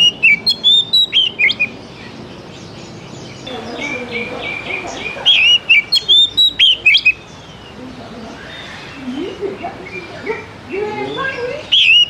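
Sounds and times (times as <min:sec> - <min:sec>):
bird singing whistles and chirps: 0:00.0 - 0:02.1, 0:05.3 - 0:07.6, 0:11.0 - 0:12.0.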